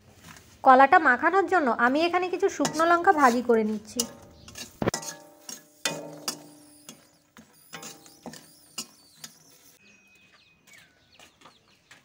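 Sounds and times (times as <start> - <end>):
chillies frying in oil: 1.1 - 9.8
metal spatula scraping a wok: 2.0 - 9.8
wok ringing: 2.1 - 10.1.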